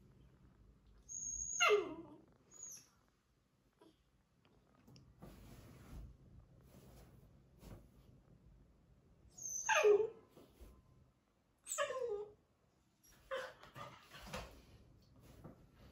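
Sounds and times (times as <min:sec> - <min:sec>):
soft puppy sounds: 0:00.8 - 0:04.2, 0:09.3 - 0:10.8.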